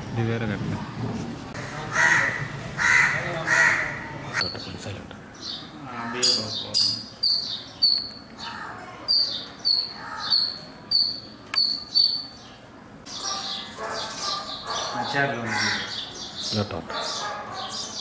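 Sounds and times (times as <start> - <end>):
sparrows chirping: 4.4 - 18.0.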